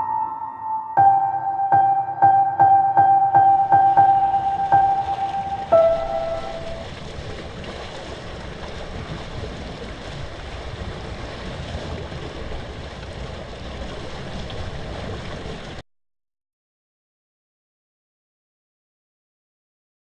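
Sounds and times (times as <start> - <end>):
floodwater rushing in a whirlpool: 3.4 - 15.8.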